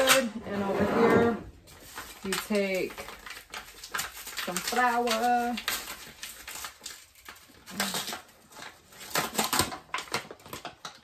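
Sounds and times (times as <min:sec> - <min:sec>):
paper bag crinkling: 0:00.0 - 0:11.0.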